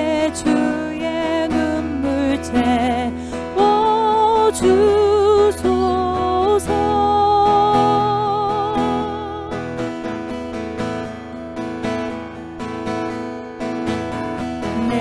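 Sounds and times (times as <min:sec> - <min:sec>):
woman singing with vibrato: 0:00.0 - 0:09.8, 0:14.6 - 0:15.0
acoustic guitar strumming: 0:00.0 - 0:15.0.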